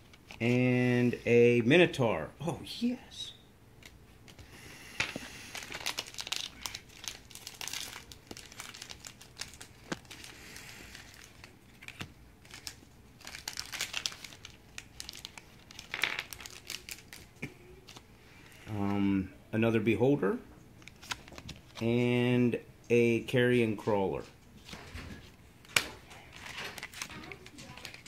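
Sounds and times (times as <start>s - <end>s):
foil pack tearing and crinkling: 5.4s - 17.3s, 26.4s - 28.0s.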